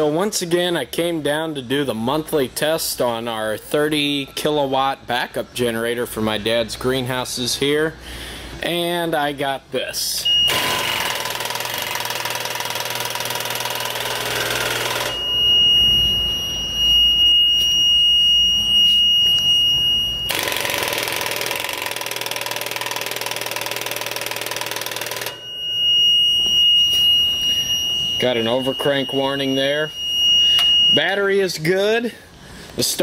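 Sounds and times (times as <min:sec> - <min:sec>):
high-pitched alarm buzzer: 0:10.2 - 0:31.5.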